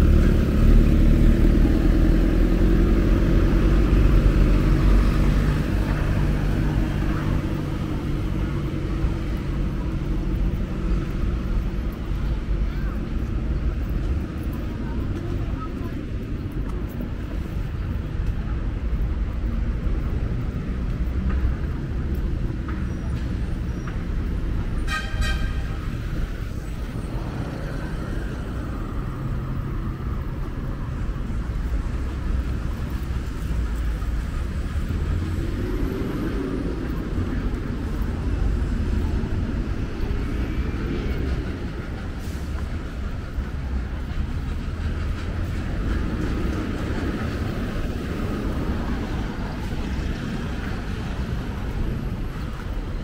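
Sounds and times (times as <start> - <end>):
rumble of passing vehicles: 0.0 - 53.0
short horn toot: 24.8 - 25.8.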